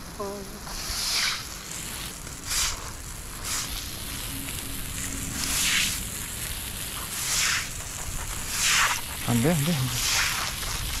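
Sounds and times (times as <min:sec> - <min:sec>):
broom sweeping water on concrete: 0:00.7 - 0:03.9, 0:07.1 - 0:09.2, 0:09.9 - 0:11.0.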